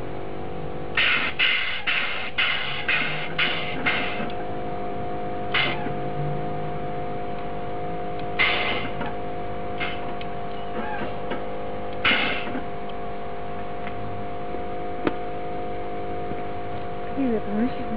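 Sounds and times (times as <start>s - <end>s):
steady hum: 0.0s - 17.9s
air suspension valves hissing: 0.9s - 4.4s, 5.4s - 6.0s, 8.2s - 13.8s.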